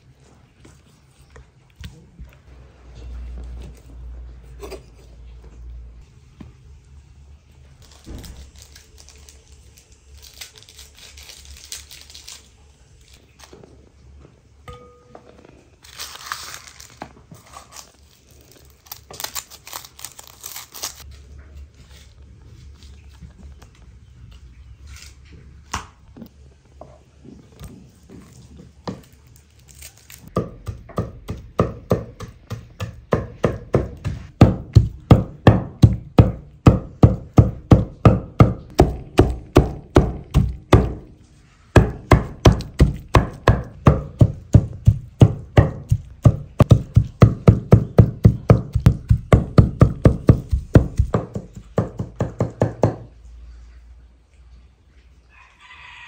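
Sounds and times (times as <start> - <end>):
knife chopping meat on wooden board: 30.4 - 41.1, 41.8 - 53.0.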